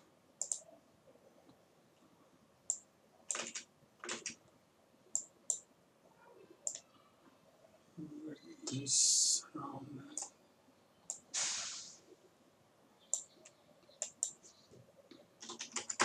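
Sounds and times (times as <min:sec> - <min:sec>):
mouse and keyboard clicks: 0:00.4 - 0:00.7, 0:06.6 - 0:06.9, 0:13.1 - 0:16.0.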